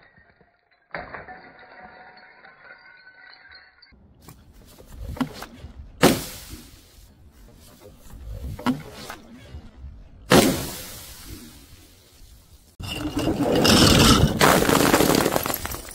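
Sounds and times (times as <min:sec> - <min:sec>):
sharp slap: 0:06.0 - 0:06.5, 0:10.3 - 0:10.9.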